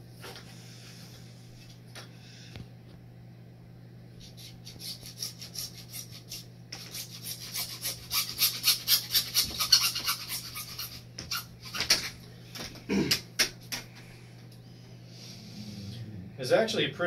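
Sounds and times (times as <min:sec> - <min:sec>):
hacksaw cutting plastic pipe: 0:04.7 - 0:12.1.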